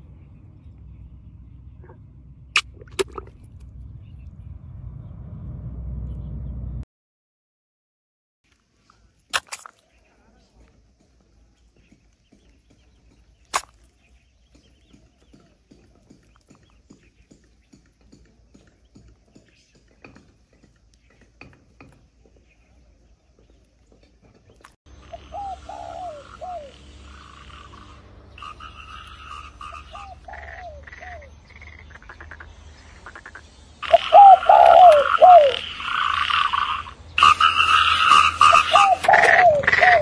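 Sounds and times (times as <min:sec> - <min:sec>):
frogs croaking: 0:24.9 - 0:40.0.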